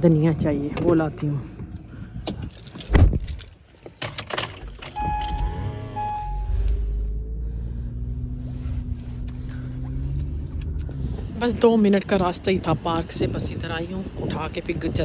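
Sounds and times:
car engine starting and idling: 2.4s - 12.7s
steady tone: 5.0s - 8.0s.

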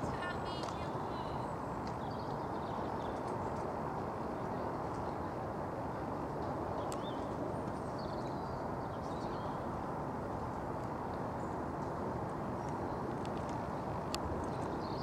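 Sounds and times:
rushing outdoor noise: 0.0s - 15.0s.

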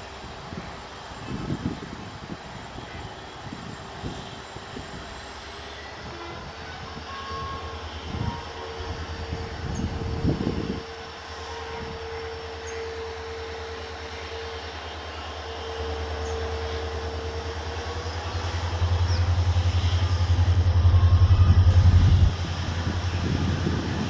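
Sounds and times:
diesel locomotive engine throbbing: 0.0s - 24.0s
thin steady whine: 0.0s - 24.0s.

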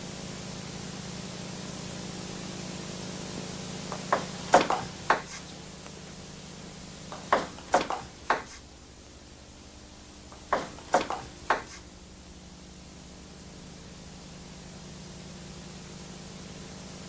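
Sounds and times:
steady hiss: 0.0s - 17.0s
table tennis ball clicking: 3.9s - 5.4s, 7.2s - 8.6s, 10.4s - 11.8s.

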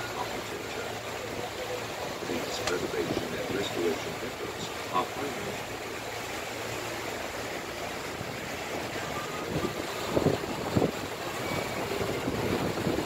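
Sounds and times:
water rushing: 0.0s - 13.0s
wind buffeting microphone: 8.0s - 13.0s.

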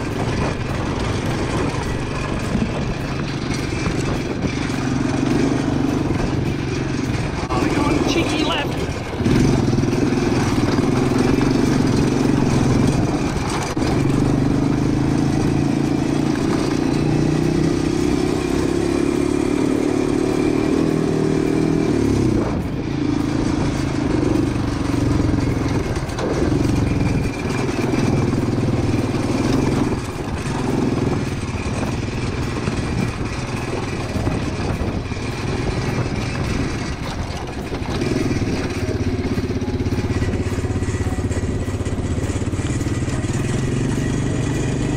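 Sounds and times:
quad bike engine running: 0.0s - 44.9s.

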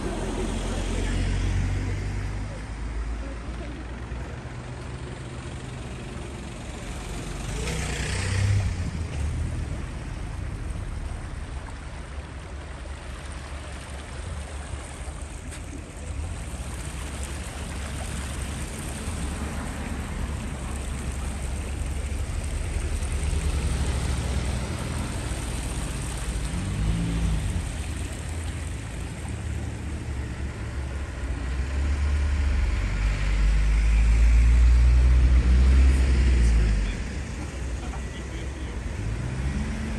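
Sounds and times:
traffic rumble: 0.0s - 39.9s
vehicles passing by: 0.0s - 39.9s.

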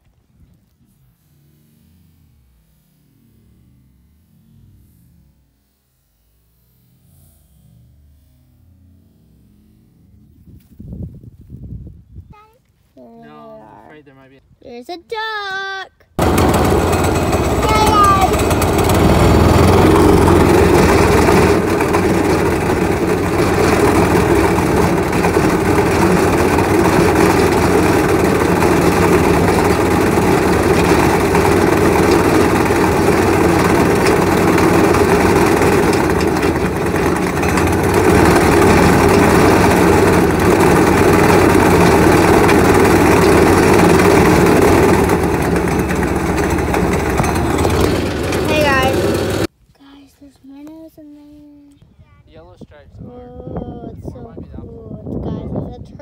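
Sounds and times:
go-kart engine running: 16.2s - 49.5s.

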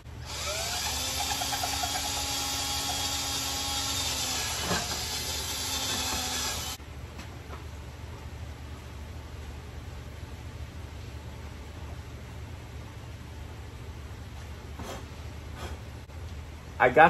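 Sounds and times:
cordless drill boring wood: 0.2s - 6.8s.

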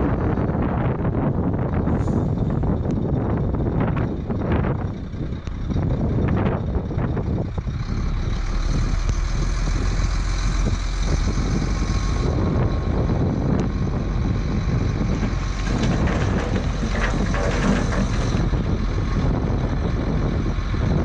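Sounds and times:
truck diesel engine running: 1.1s - 21.0s.

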